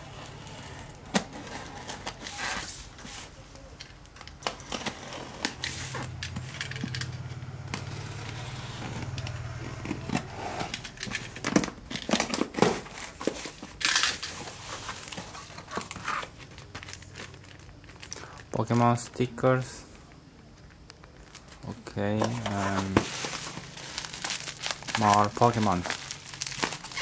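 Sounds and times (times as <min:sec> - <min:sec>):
cardboard flaps crinkling and scraping: 0:07.8 - 0:17.6, 0:21.3 - 0:27.0
plastic packs crackling: 0:07.8 - 0:19.7, 0:20.7 - 0:27.0
tape and paper ripping: 0:21.2 - 0:27.0.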